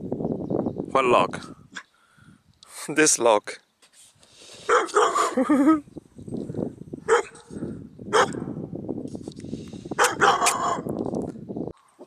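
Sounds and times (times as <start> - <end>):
dog barking: 4.7 - 5.4, 7.1 - 8.6, 10.0 - 10.9.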